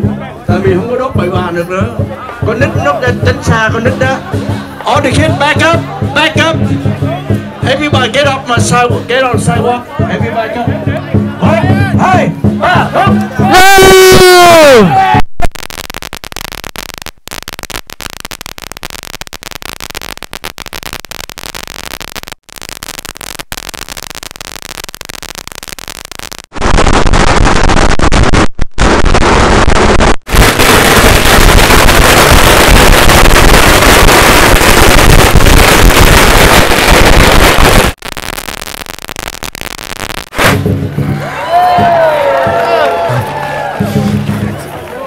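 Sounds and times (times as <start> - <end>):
firecrackers crackling: 13.1 - 45.0.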